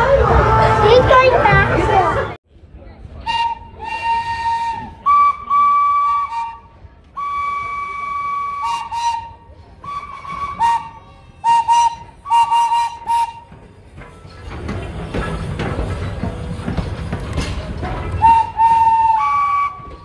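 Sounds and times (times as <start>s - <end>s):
locomotive whistle blowing: 3.2s - 13.7s, 18.0s - 20.0s.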